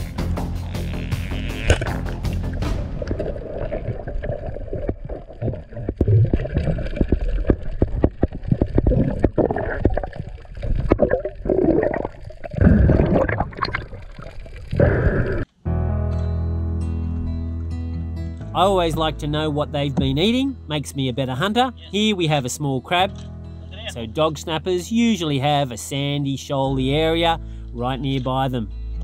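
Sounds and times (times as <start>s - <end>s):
sharp underwater clicks: 1.1s - 3.2s
underwater water rushing: 1.7s - 15.5s.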